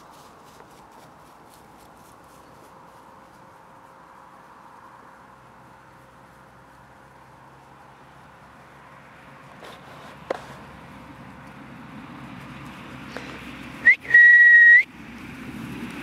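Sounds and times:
rising whistle chirp: 13.8s - 14.9s
steady high whistle: 13.8s - 14.9s.

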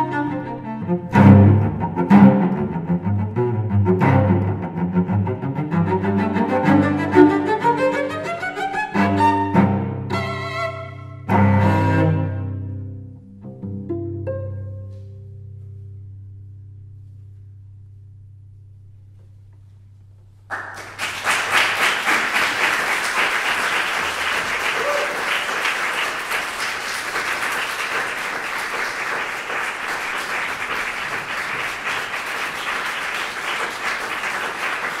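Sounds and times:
plucked cello note: 0.0s - 20.2s
audience applause: 20.5s - 35.0s.

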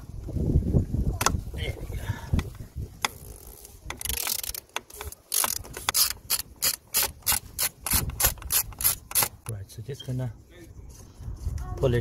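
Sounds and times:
ratchet clicking: 3.0s - 9.5s.

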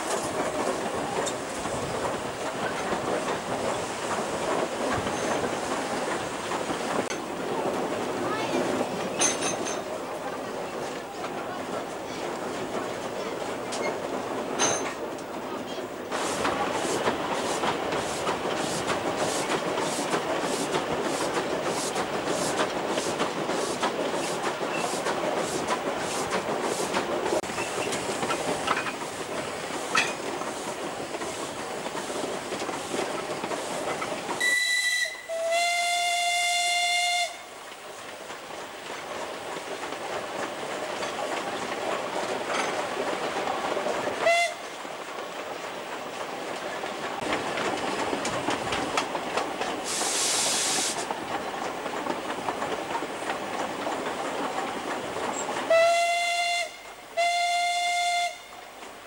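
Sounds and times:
steam hiss: 0.0s - 7.1s, 16.0s - 45.7s, 48.4s - 51.6s
steam locomotive rumble: 0.0s - 59.0s
steam whistle blasts: 34.4s - 37.5s, 44.2s - 44.6s, 55.7s - 58.6s.

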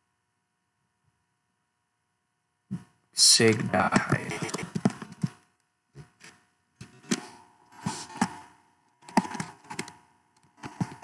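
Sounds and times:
keyboard keys clicking: 9.0s - 10.0s, 10.6s - 11.0s.

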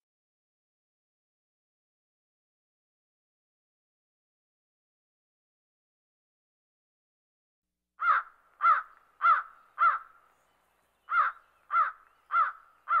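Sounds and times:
crow cawing: 8.0s - 10.3s, 11.1s - 13.0s.

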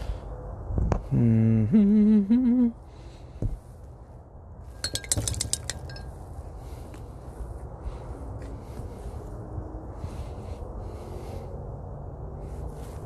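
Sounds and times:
man humming a tune: 1.1s - 2.8s
light clinks: 4.8s - 6.2s.

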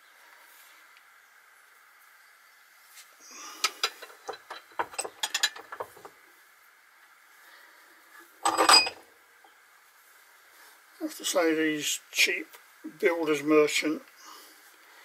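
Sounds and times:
metal clatter: 3.6s - 6.2s, 8.4s - 9.0s.

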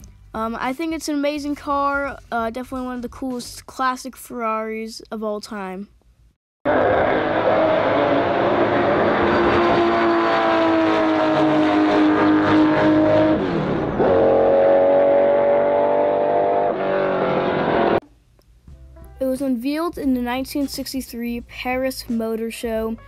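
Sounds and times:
racing car engine at high revs: 6.7s - 18.0s.

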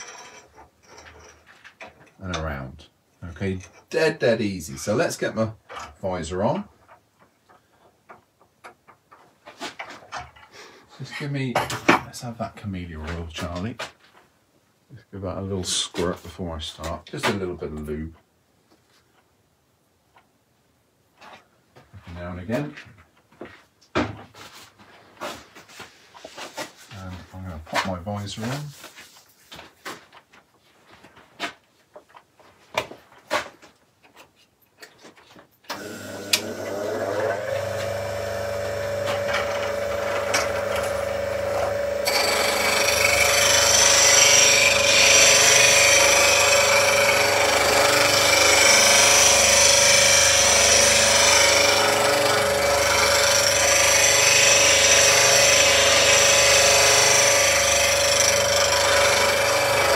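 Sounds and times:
chisel grinding on wheel: 0.0s - 1.4s, 38.8s - 59.9s
bench grinder humming: 35.7s - 59.9s.

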